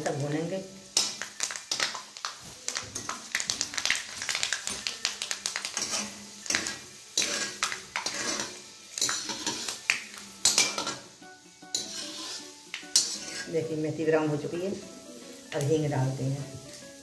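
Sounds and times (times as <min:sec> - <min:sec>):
seeds sizzling in hot oil: 0:00.0 - 0:17.0
metal skimmer scraping a pan: 0:05.8 - 0:09.7, 0:11.7 - 0:13.6.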